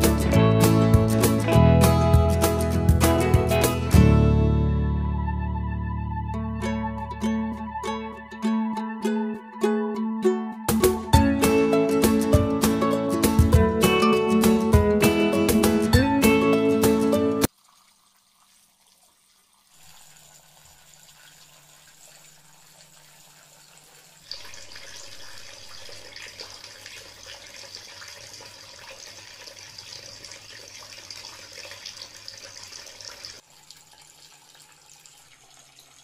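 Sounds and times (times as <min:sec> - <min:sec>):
water splashing in fountain: 0:17.4 - 0:36.0
pump humming: 0:19.8 - 0:36.0.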